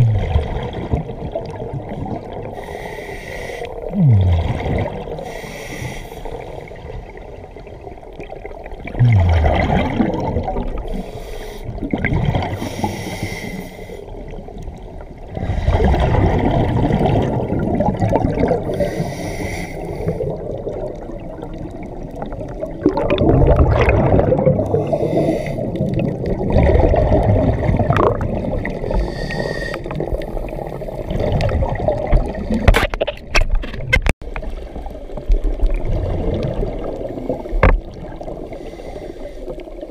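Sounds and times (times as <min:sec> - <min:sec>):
bubbles gurgling underwater: 0:00.0 - 0:02.6, 0:03.8 - 0:05.4, 0:06.3 - 0:11.1, 0:11.7 - 0:12.9, 0:14.1 - 0:19.0, 0:19.9 - 0:38.6
diver breathing through regulator: 0:02.5 - 0:04.5, 0:05.2 - 0:06.6, 0:10.8 - 0:11.9, 0:12.5 - 0:14.2, 0:18.6 - 0:20.4, 0:24.6 - 0:26.0, 0:28.6 - 0:31.3, 0:38.4 - 0:39.9.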